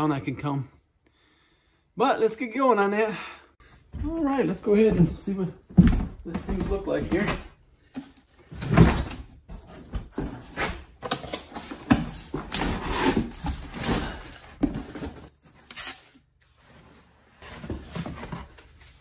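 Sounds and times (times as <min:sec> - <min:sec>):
cardboard rustling and scraping: 0:06.0 - 0:19.0.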